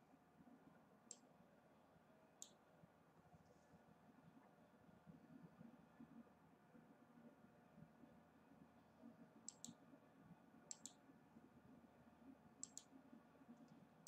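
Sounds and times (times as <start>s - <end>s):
low room hum: 0.0s - 14.0s
faint double clicks: 9.5s - 9.8s, 10.7s - 11.0s, 12.6s - 13.0s.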